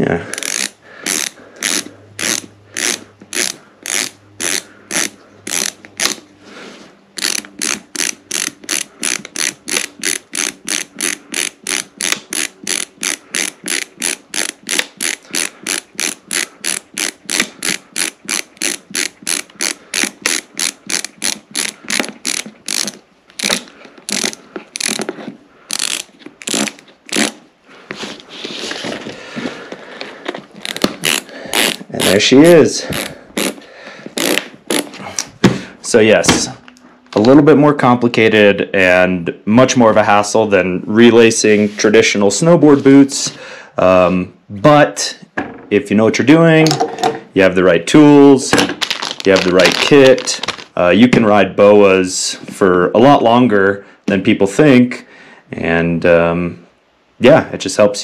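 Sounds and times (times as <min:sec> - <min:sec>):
ratchet dial clicking: 0:00.4 - 0:06.2, 0:07.2 - 0:25.0, 0:25.7 - 0:27.3.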